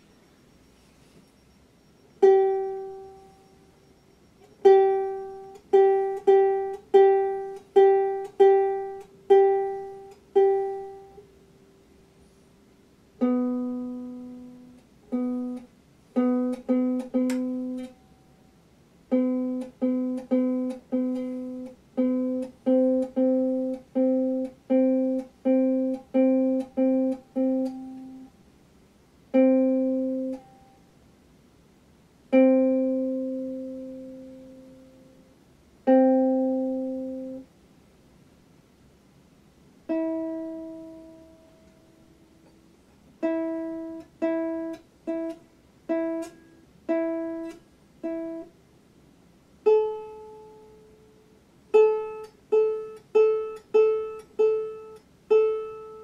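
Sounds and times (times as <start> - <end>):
ukulele strings plucked: 2.2 - 3.5, 4.6 - 11.2, 13.2 - 18.2, 19.1 - 28.3, 29.3 - 30.8, 32.3 - 35.1, 35.8 - 37.5, 39.9 - 42.6, 43.2 - 48.5, 49.6 - 51.0, 51.7 - 56.0.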